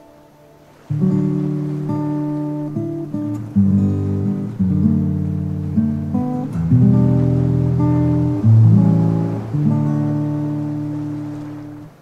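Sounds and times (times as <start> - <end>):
plucked string chords: 0.0 - 12.0.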